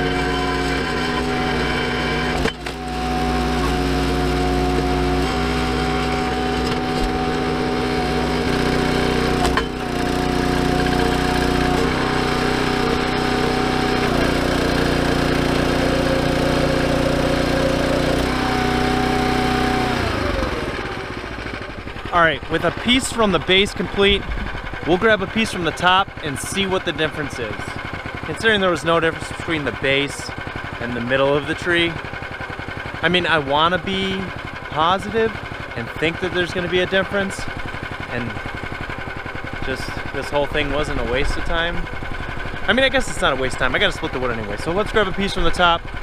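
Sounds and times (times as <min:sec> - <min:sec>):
hydraulic whine: 0:00.0 - 0:46.0
log splitter engine running: 0:00.0 - 0:46.0.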